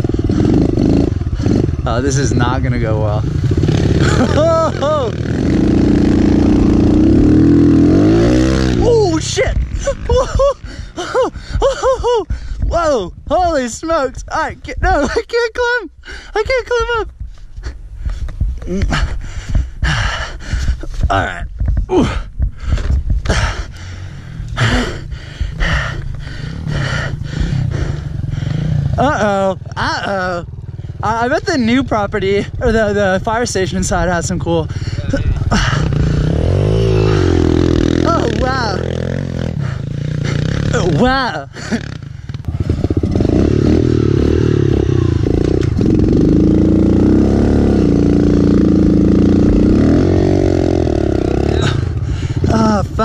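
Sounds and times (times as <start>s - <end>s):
dirt bike engines revving: 0.0s - 53.0s
person breathing hard: 10.6s - 11.7s, 12.3s - 12.7s, 16.0s - 16.4s, 17.2s - 21.1s, 21.7s - 29.0s, 34.7s - 36.4s, 39.5s - 40.6s, 51.5s - 52.5s.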